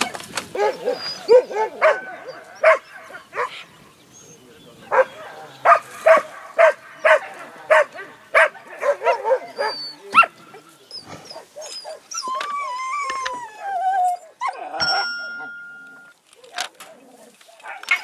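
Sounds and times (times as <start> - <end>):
dogs barking: 0.0 - 3.7, 4.8 - 12.5, 16.4 - 18.0
dogs yelping: 0.0 - 3.7, 4.3 - 15.5
dog whining: 10.9 - 15.1.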